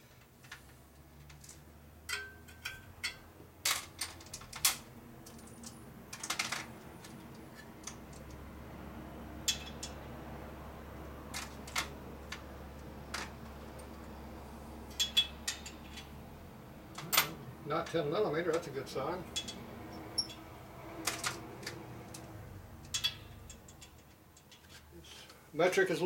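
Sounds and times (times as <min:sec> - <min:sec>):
low steady hum: 0:00.0 - 0:26.0
metal tool clicks and clinks: 0:02.1 - 0:06.5.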